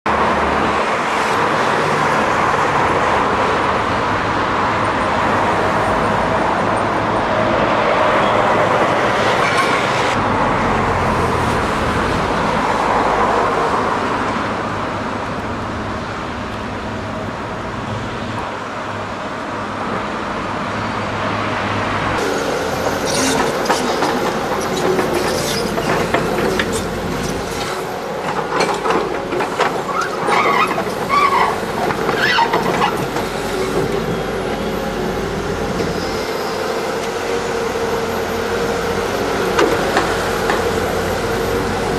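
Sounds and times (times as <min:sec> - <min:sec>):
passing road traffic: 0:00.1 - 0:41.9
excavator diesel engine running: 0:22.2 - 0:41.9.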